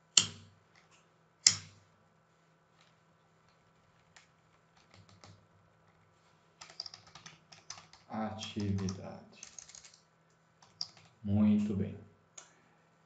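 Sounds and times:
quick typing: 6.6s - 10.0s, 10.6s - 11.2s.

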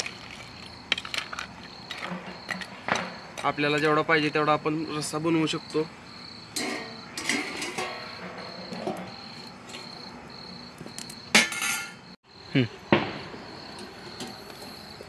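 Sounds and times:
crickets chirping: 0.0s - 15.0s
steel cookware clinking and clanging: 6.5s - 9.9s, 11.3s - 12.0s.

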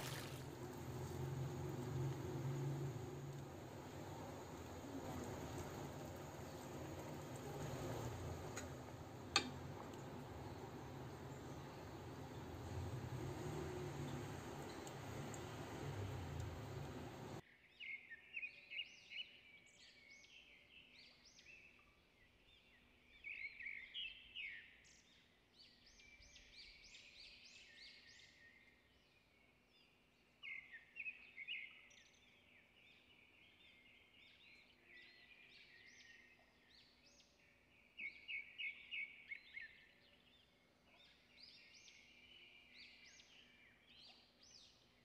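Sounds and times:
birds chirping: 0.0s - 17.9s.

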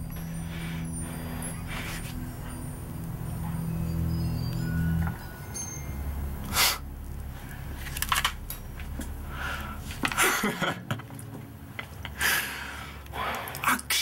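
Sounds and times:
man breathing heavily and sniffing: 0.0s - 3.6s, 6.4s - 8.0s, 9.2s - 10.6s, 12.1s - 13.7s
low room hum: 0.0s - 14.0s.

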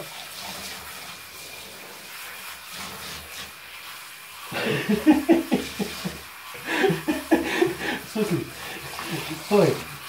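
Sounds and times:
shower head spraying water: 0.0s - 10.0s
person talking: 6.7s - 10.0s.

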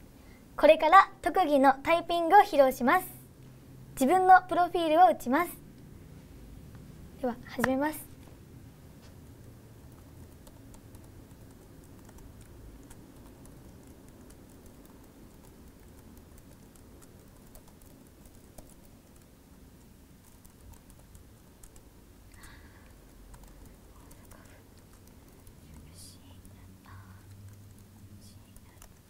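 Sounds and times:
fast typing on keyboard: 9.8s - 29.0s.

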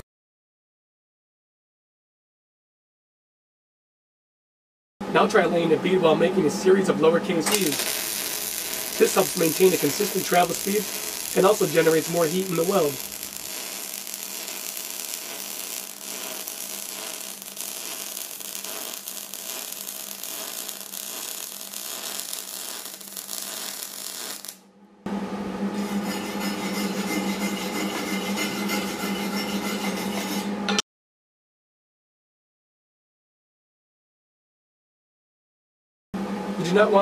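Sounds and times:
steady hum: 5.1s - 28.5s
welding arc crackling: 7.5s - 24.6s.

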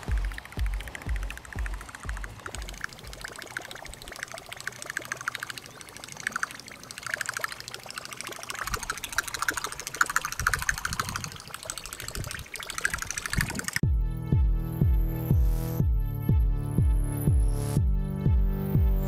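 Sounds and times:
lure blade churning water: 0.0s - 13.8s.

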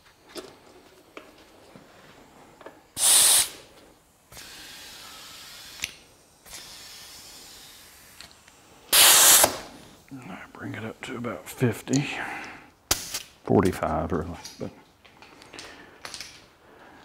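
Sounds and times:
air hose hissing: 2.8s - 11.7s.

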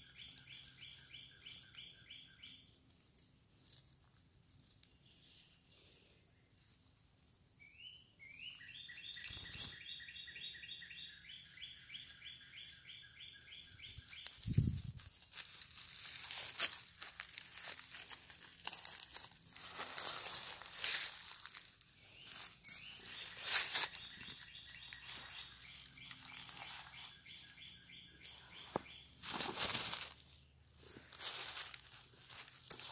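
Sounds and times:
dry leaf litter rustling: 0.0s - 32.9s.

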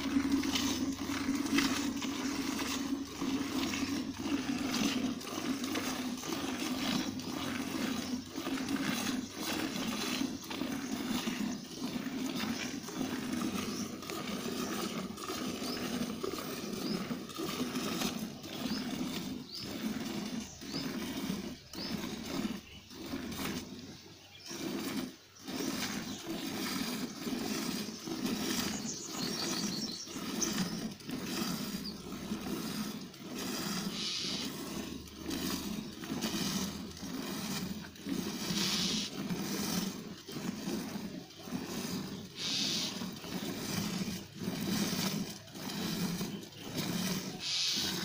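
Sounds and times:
milk squirting into metal pail: 0.0s - 48.0s.

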